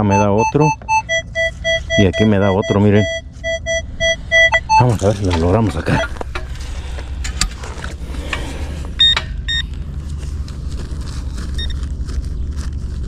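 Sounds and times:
metal detector beeps: 0:00.0 - 0:06.2, 0:09.0 - 0:09.7
low rumble: 0:00.0 - 0:13.0.

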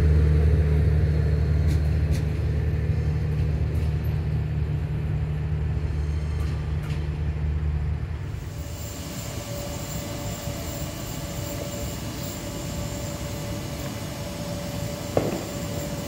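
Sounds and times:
distant diesel locomotive rumble: 0:00.0 - 0:16.0
thin steady whine: 0:00.0 - 0:16.0.

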